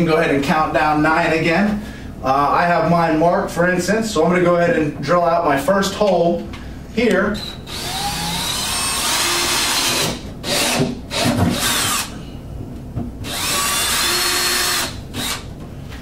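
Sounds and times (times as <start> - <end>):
cordless drill boring plastic: 7.4 - 12.1, 13.2 - 15.5.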